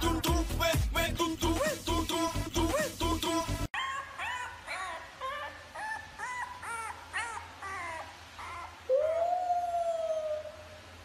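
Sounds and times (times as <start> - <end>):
puppy whimpering yips: 3.8 - 9.5
puppy howling: 3.8 - 10.8.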